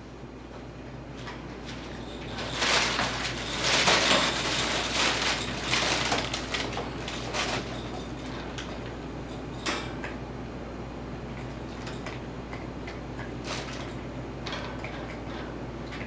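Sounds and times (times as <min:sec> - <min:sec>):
puppy moving in wire pen: 0:01.2 - 0:09.0.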